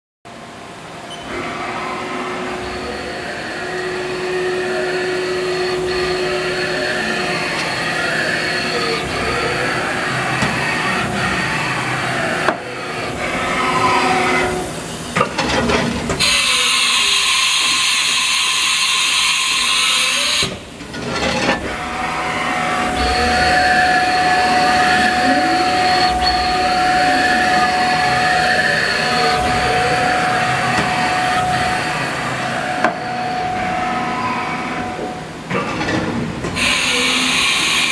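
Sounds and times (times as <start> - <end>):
steady mechanical hum: 0.3 - 37.9
motor whining: 1.2 - 14.8, 16.2 - 35.3
loud hiss: 36.6 - 37.9.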